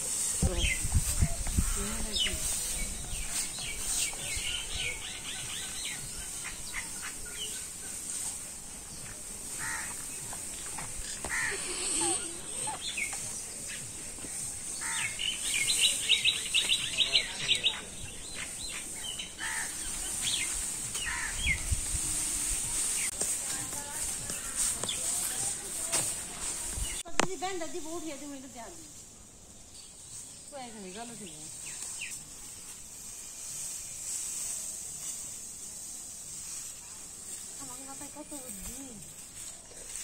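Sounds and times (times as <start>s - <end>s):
steady high hiss: 0.0s - 40.0s
birds chirping: 0.4s - 32.4s.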